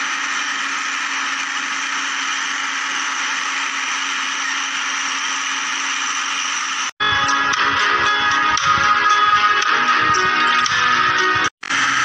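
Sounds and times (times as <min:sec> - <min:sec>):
toy electric motor whirring: 0:00.0 - 0:07.0.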